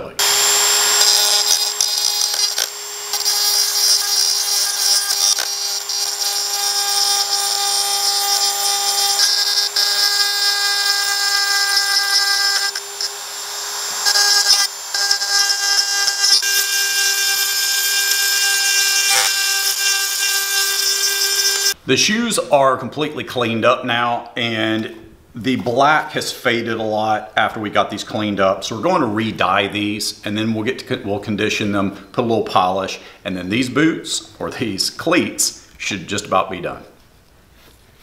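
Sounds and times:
rotary tool grinding metal: 0:00.2 - 0:21.8.

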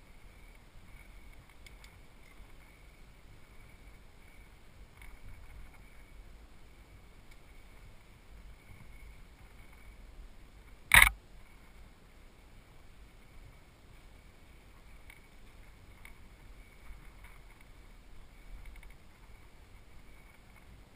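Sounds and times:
sharp knock from bike: 0:10.9 - 0:11.1.

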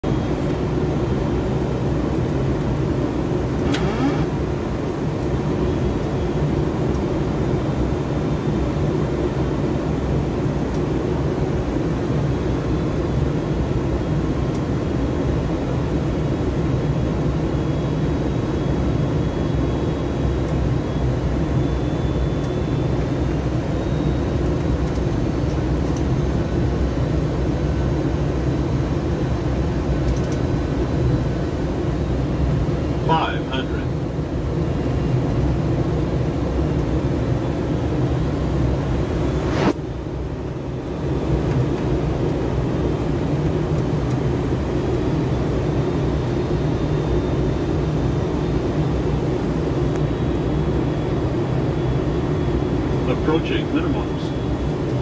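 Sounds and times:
aircraft cockpit engine rumble: 0:00.0 - 0:55.0.

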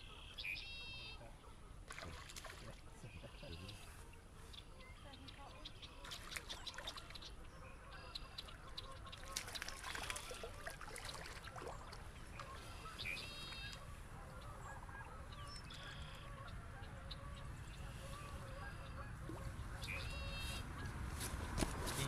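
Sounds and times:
open-air background noise: 0:00.0 - 0:22.0
geese honking: 0:12.4 - 0:20.6.

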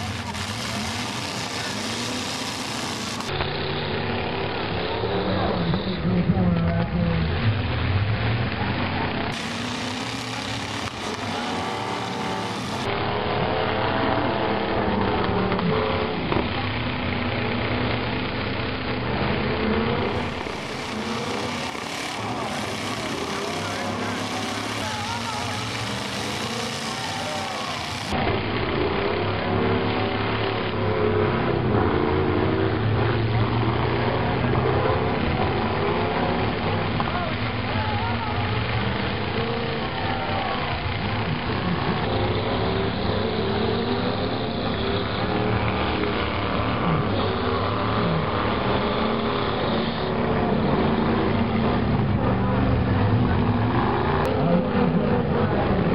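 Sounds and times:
truck engines revving: 0:00.0 - 0:55.9.

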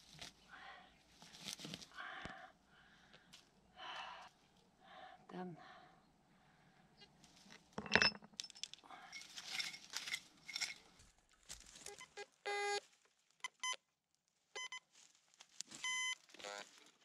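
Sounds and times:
gear rustling and clinking: 0:07.8 - 0:11.1
metal detector beeps: 0:11.9 - 0:12.8, 0:13.5 - 0:13.8, 0:14.6 - 0:14.8, 0:15.8 - 0:16.6.

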